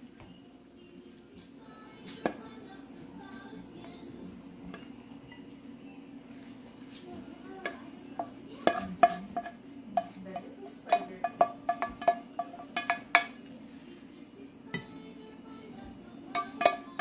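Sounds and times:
spoon clinking on metal pan: 0:10.9 - 0:13.4, 0:16.3 - 0:17.0.

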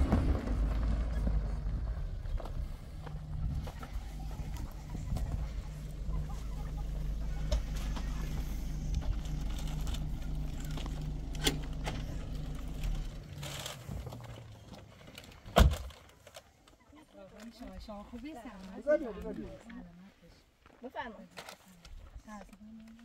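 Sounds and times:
engine humming: 0:00.0 - 0:16.4.

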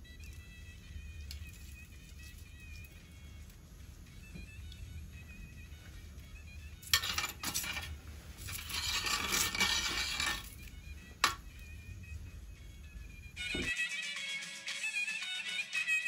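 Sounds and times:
metal spoon clinking on pot: 0:06.9 - 0:10.5, 0:11.2 - 0:11.4.

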